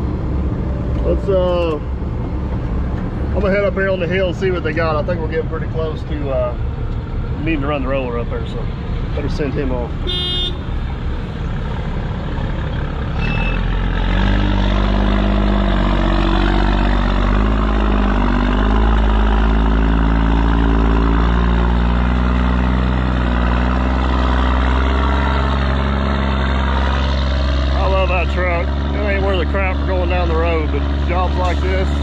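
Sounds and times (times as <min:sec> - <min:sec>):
truck diesel engine pulling away: 0:10.8 - 0:32.0
short beep: 0:13.2 - 0:13.7.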